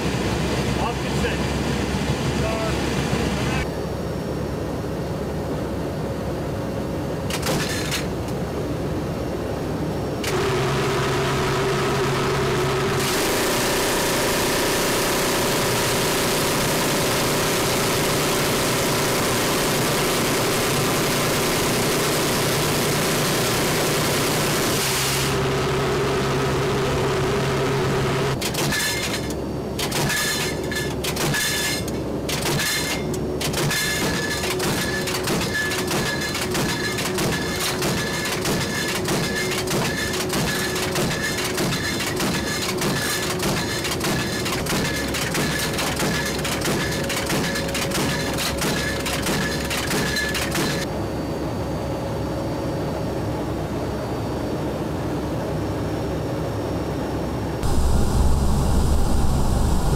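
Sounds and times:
turboprop engines droning: 0.0 - 7.4, 8.0 - 28.4, 46.6 - 59.9
low hum: 25.2 - 28.4, 57.6 - 59.9.

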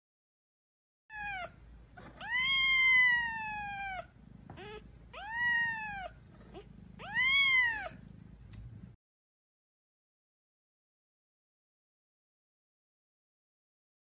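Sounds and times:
kitten mewing: 1.1 - 8.1.

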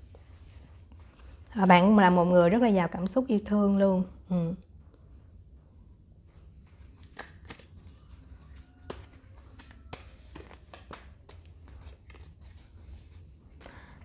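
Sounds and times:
cards tapping and rustling: 6.6 - 13.9
small card clicks: 7.0 - 7.7.

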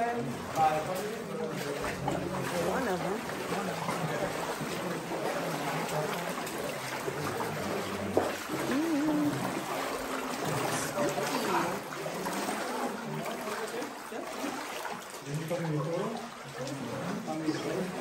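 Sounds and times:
indistinct voices: 1.6 - 14.4.

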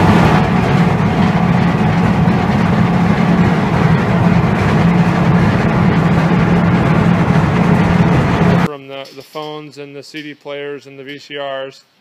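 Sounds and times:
hammer mill running: 0.0 - 8.7.

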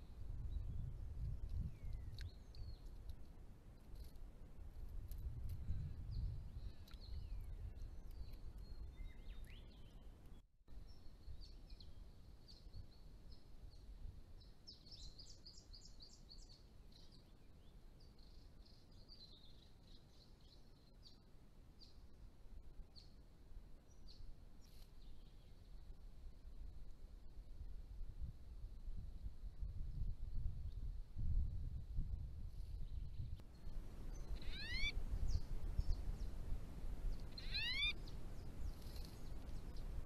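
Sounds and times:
small birds chirping: 0.0 - 3.2, 5.6 - 22.1, 32.8 - 36.4, 37.0 - 40.0.

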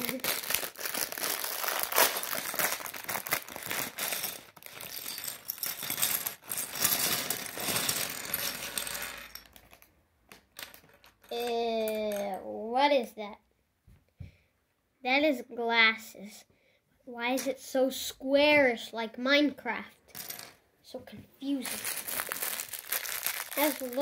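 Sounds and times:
plastic bag rustling: 0.0 - 9.8, 21.5 - 24.0
plastic bricks clattering on wood: 3.4 - 12.2, 21.6 - 24.0.

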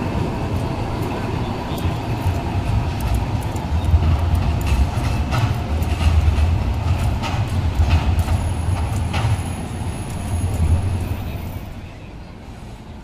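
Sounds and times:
bus high whine: 0.0 - 13.0
tram rumbling on rails: 0.0 - 13.0
wheel clicks over track joints: 1.7 - 10.7.

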